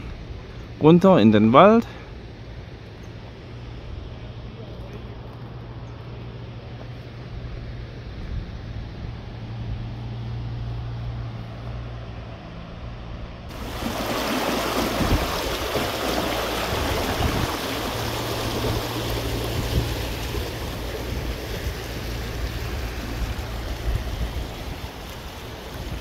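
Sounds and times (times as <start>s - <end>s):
brook rushing over stones: 13.5s - 26.0s.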